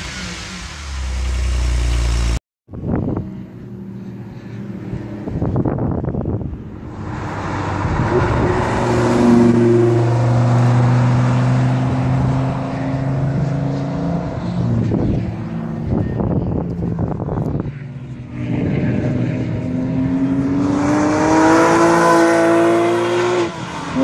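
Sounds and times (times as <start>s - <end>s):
car engine revving high: 18.2s - 24.0s.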